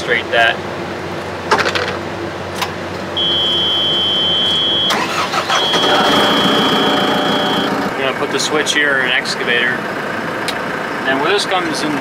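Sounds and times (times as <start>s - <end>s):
diesel engine running: 0.0s - 12.0s
high warning buzzer: 3.2s - 7.9s.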